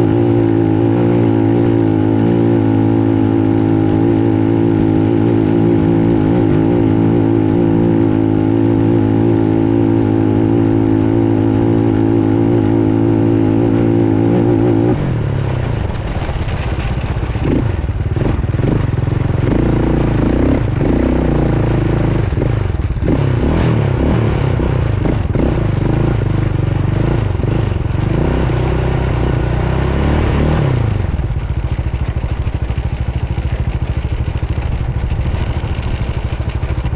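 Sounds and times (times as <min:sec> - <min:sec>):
off-road vehicle engine revving: 0:00.0 - 0:16.0, 0:17.1 - 0:31.6
vehicle rattling and knocking: 0:14.2 - 0:36.9.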